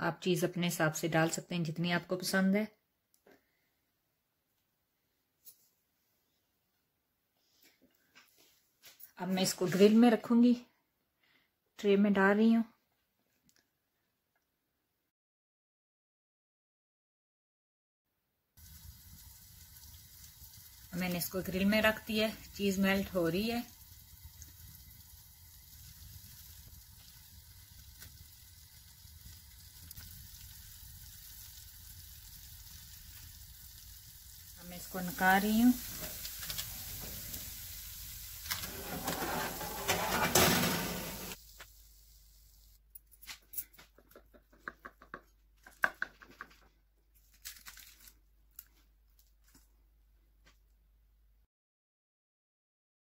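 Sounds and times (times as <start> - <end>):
faint crackles: 18.6 - 41.8
sandwich sizzling under grill: 18.6 - 42.8.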